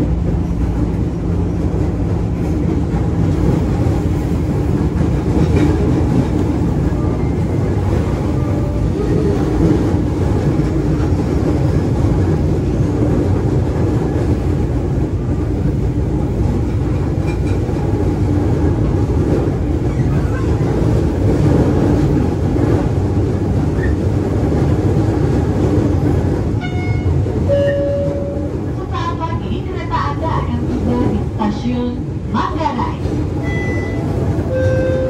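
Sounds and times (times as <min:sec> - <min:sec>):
train wheels rumbling: 0:00.0 - 0:35.0
brief high tone: 0:26.6 - 0:28.5.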